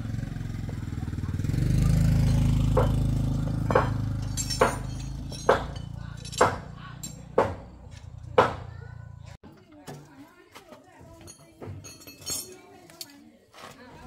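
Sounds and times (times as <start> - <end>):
engine running low: 0.0 - 9.3
metal struck with ringing blows: 2.0 - 8.7.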